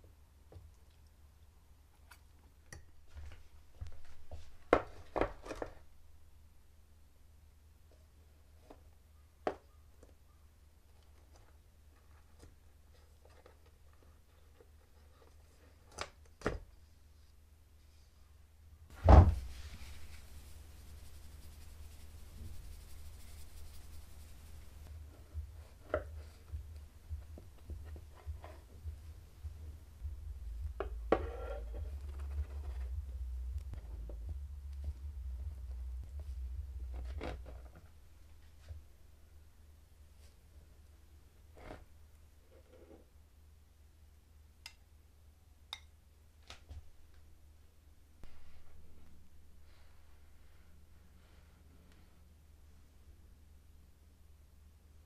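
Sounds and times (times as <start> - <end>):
heavy thump: 18.9 - 19.6.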